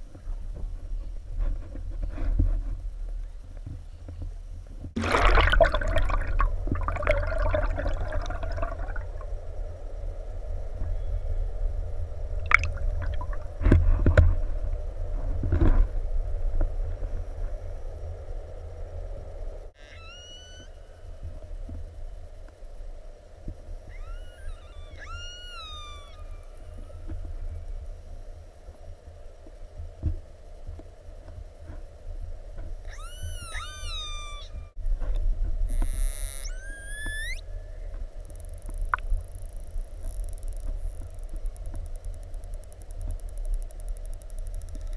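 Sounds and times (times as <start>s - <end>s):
deep rumble: 4.6s - 19.7s
water gurgling and sloshing: 4.8s - 10.1s, 12.1s - 14.6s
splashy knocks: 5.0s - 9.0s
dolphin whistles underwater: 19.8s - 21.0s, 23.9s - 27.2s, 32.9s - 34.8s, 36.3s - 37.8s.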